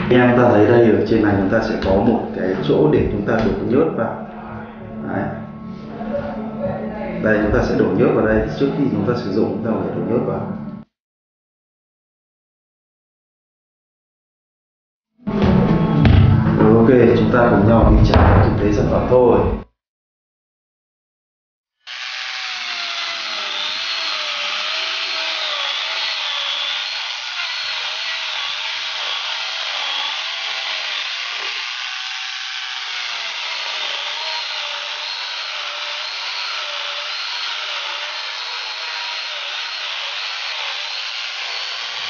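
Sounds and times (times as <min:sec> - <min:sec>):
electric chainsaw cutting wood: 0:21.8 - 0:42.0.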